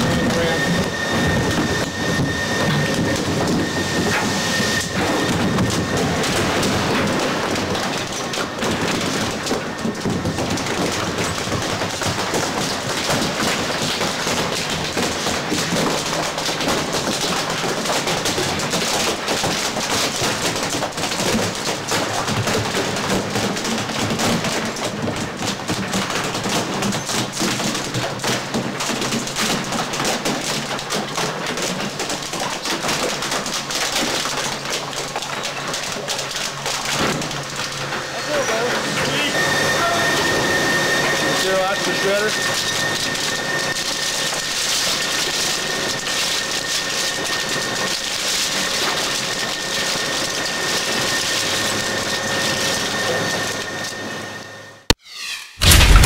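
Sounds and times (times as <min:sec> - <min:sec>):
shredder machine hum: 0:00.0 - 0:54.8
plastic cracking and snapping: 0:00.8 - 0:37.9.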